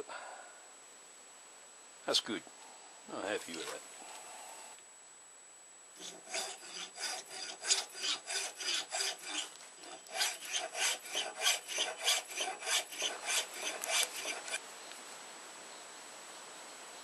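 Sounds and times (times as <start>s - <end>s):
file rasping on knife blade: 6.0s - 14.6s.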